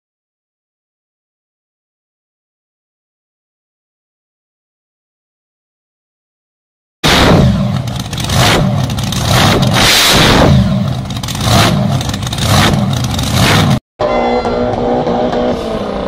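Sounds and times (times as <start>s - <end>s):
dragster engines revving: 7.0s - 13.8s, 14.4s - 16.0s
car engine idling: 7.4s - 13.8s.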